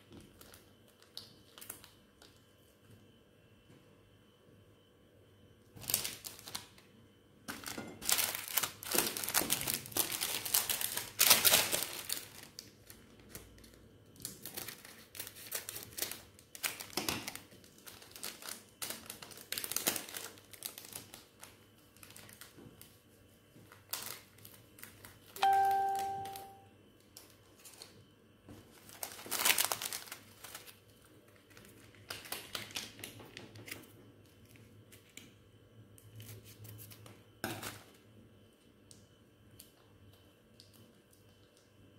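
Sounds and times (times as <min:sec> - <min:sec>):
plastic sachets crinkling: 0:00.2 - 0:02.4, 0:05.8 - 0:06.9, 0:07.5 - 0:23.0, 0:23.6 - 0:26.6, 0:28.6 - 0:35.2
bell-like chime: 0:25.4 - 0:26.6.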